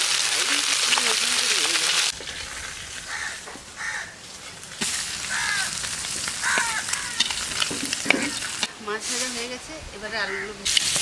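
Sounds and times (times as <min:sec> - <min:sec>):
fish sizzling in hot oil: 0:00.0 - 0:09.6, 0:10.6 - 0:11.0
crows cawing: 0:03.0 - 0:04.2, 0:05.2 - 0:07.5.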